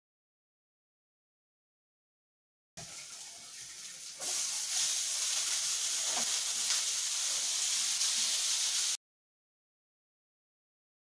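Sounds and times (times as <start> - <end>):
steak sizzling in a pan: 4.1 - 9.0.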